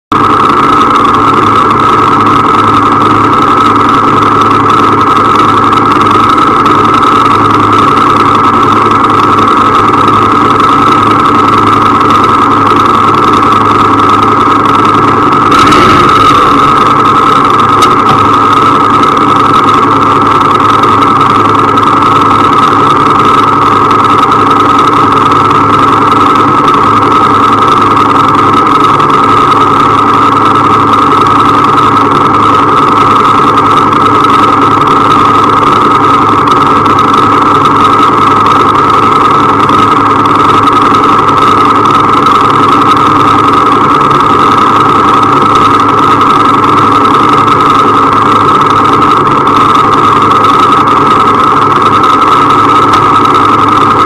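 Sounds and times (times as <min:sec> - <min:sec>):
motorcycle engine idling: 0:00.1 - 0:54.0.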